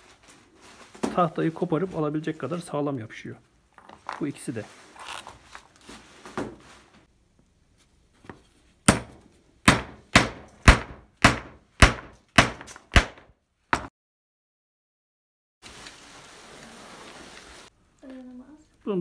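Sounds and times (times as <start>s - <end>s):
handling wooden pieces: 3.7s - 5.9s
hammer striking chisel: 8.8s - 13.9s.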